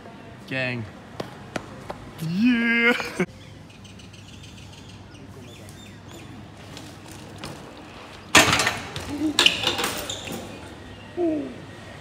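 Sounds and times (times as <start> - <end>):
bike hitting metal handrail: 8.3 - 10.6.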